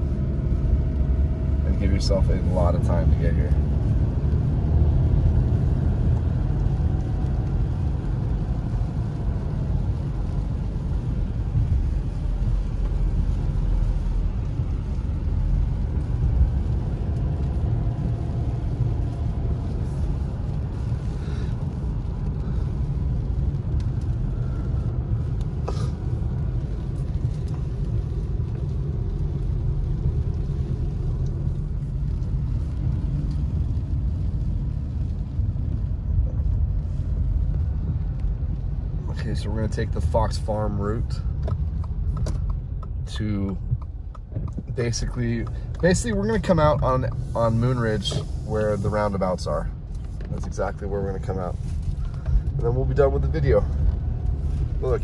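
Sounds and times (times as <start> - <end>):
car engine and tyres rumbling: 0.0 - 55.0.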